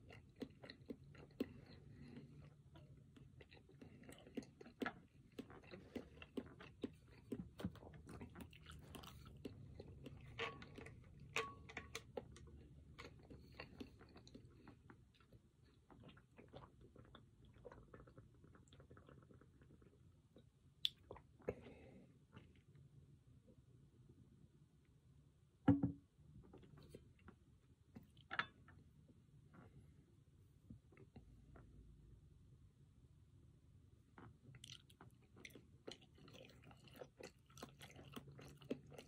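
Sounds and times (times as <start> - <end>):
person chewing food: 0.0 - 22.8, 34.1 - 39.0.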